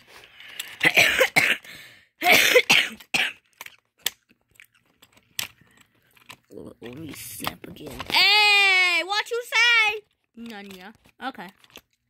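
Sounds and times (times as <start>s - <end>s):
person coughing: 0.8s - 3.5s.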